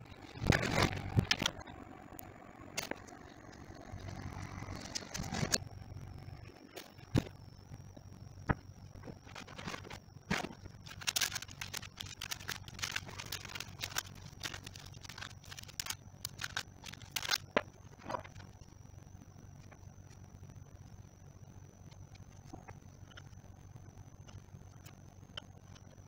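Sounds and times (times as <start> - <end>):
faint high whine: 0.0 - 26.0.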